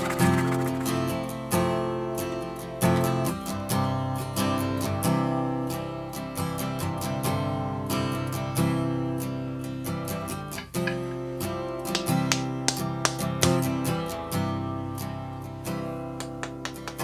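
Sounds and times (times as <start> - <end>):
acoustic guitar strumming: 0.0 - 17.0.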